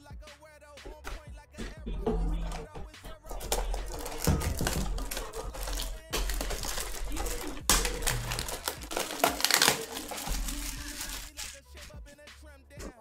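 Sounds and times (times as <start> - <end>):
plastic wrap crinkling: 2.3 - 12.0.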